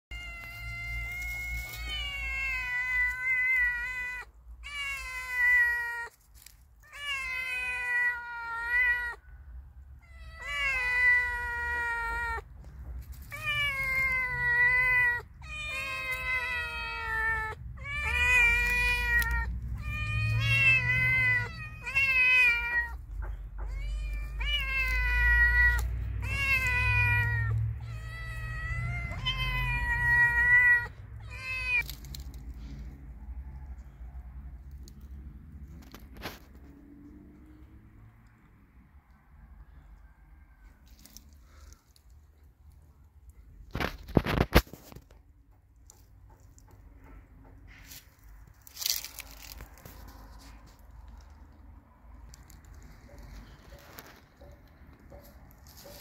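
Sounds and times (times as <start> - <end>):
cats meowing: 0.1 - 34.0.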